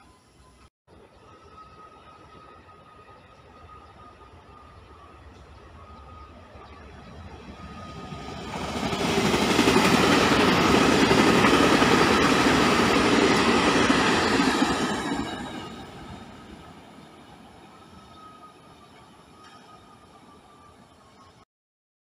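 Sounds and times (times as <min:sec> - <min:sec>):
train rumble and rail noise: 0:00.0 - 0:21.4
train passing at speed: 0:01.0 - 0:21.4.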